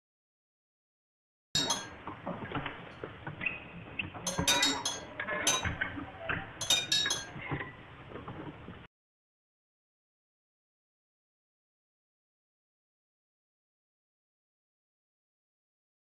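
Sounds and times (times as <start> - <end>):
sharp ringing clinks: 1.6 - 2.0, 4.3 - 5.8, 6.6 - 7.4.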